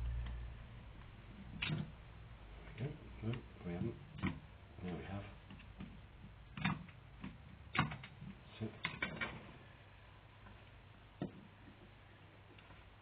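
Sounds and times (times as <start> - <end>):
small metal clicks and knocks: 5.4 - 9.4.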